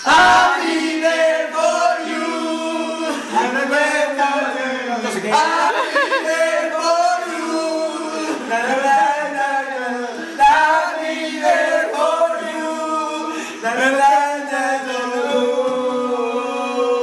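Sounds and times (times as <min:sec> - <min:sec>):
group singing unaccompanied: 0:00.0 - 0:17.0.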